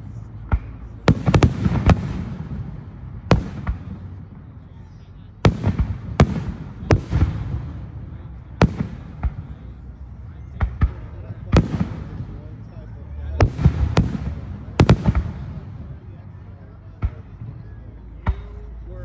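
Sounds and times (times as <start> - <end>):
firework shells booming: 0.4 - 4.4, 5.5 - 8.0, 8.6 - 9.6, 10.6 - 12.5, 13.4 - 16.0.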